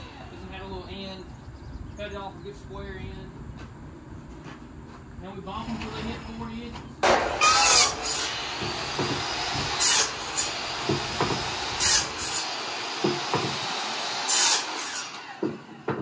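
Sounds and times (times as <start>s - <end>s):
electric saw cutting wood: 0.0s - 0.4s, 7.0s - 15.9s
saw high whine: 7.1s - 15.4s.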